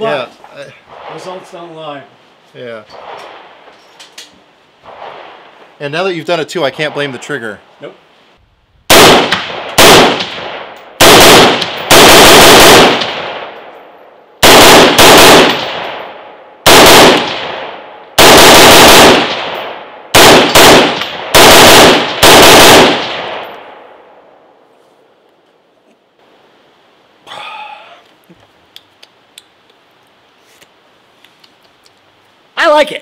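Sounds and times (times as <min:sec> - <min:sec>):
rifle shots echoing: 0:04.8 - 0:07.7, 0:08.9 - 0:24.4.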